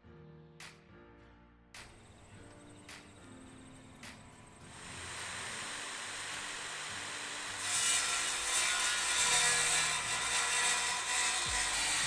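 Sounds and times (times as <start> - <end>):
tool cutting wood: 4.6 - 12.0.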